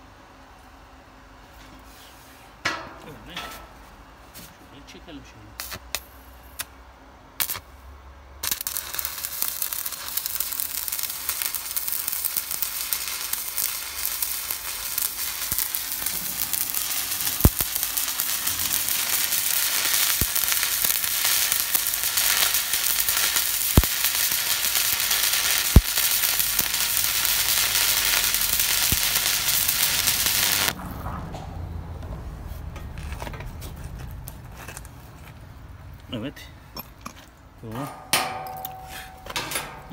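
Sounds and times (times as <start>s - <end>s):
welding arc crackling sizzle: 5.6s - 6.8s, 7.4s - 7.8s, 8.4s - 31.0s
sharp pops: 8.4s - 24.4s, 25.0s - 27.3s.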